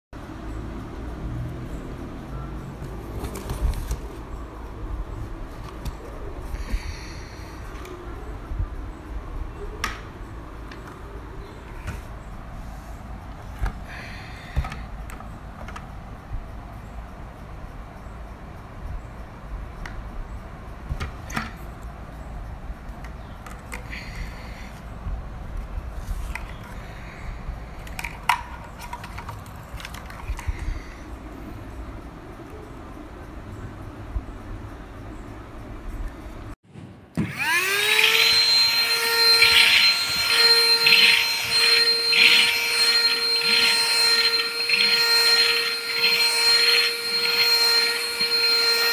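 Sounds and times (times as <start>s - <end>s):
vacuum cleaner motor whine: 37.2s - 48.9s.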